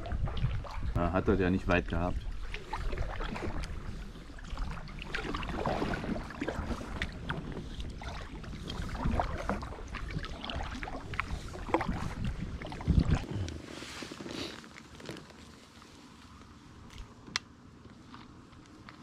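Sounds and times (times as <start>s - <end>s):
wind rumble on microphone: 0.0s - 13.6s
paddle splashing in water: 0.0s - 16.4s.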